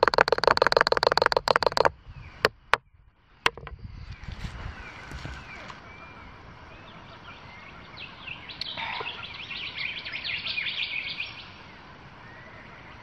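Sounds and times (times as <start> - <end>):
bird chirping rapidly: 0.0 - 2.8.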